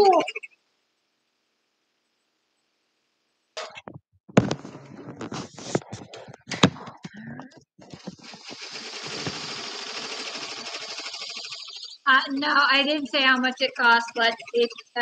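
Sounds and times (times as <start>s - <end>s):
handling knocks and clatter: 4.3s - 7.2s
embroidery machine stitching: 7.8s - 15.0s.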